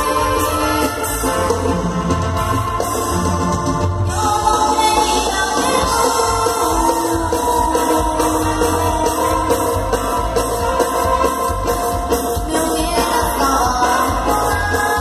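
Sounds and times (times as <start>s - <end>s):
live band playing dance music: 0.0s - 15.0s
person singing: 4.1s - 10.3s, 12.4s - 15.0s.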